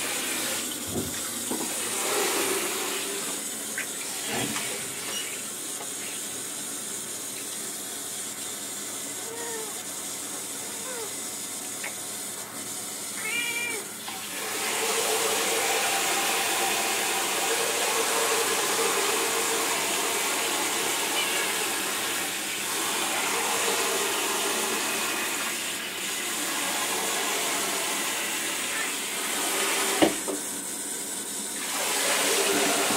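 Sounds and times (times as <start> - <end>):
shower water running into bathtub: 0.0 - 32.9
cat meowing: 9.2 - 9.8, 13.2 - 13.9, 21.1 - 21.7.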